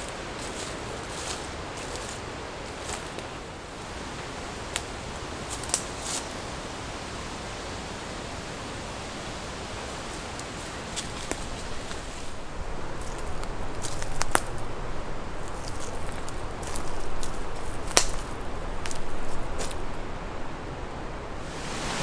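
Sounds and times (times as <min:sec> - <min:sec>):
leaves rustling in wind: 0:00.0 - 0:22.0
twigs snapping underfoot: 0:05.5 - 0:05.9, 0:13.0 - 0:14.7, 0:15.4 - 0:19.8.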